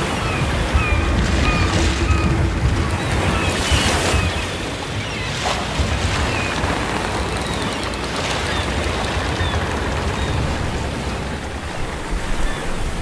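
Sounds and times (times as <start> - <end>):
seagull calls: 0.0 - 6.6
waves breaking on shore: 0.0 - 13.0.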